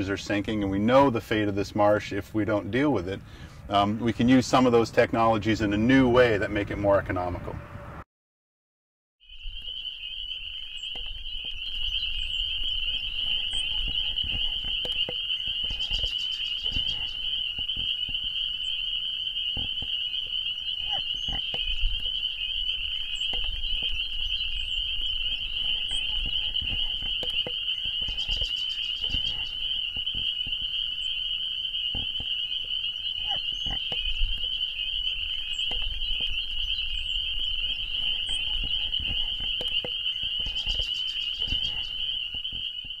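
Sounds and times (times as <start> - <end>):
frogs trilling chorus: 9.2 - 43.0
faster frog trill: 13.2 - 22.4.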